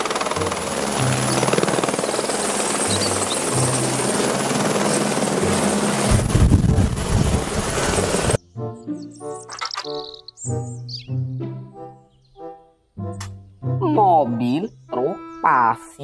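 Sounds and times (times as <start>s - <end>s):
helicopter hovering: 0.0s - 10.8s.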